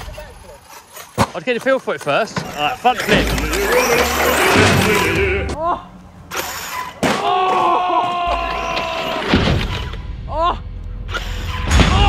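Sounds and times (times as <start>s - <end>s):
electric motor whining: 2.5s - 5.6s.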